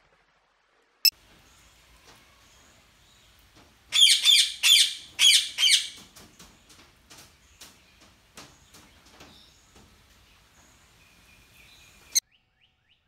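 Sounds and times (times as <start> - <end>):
parakeets screeching: 3.9 - 6.0.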